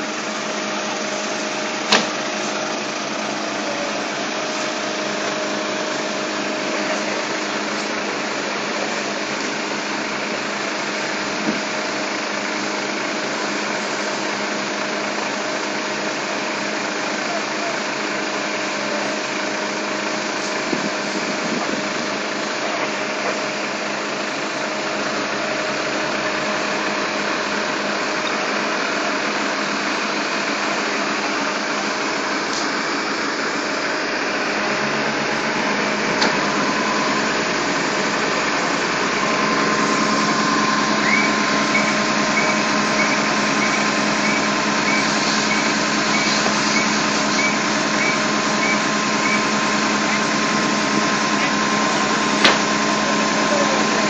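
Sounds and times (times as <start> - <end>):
fire engine pump droning: 0.0 - 54.0
steady higher tone: 29.8 - 54.0.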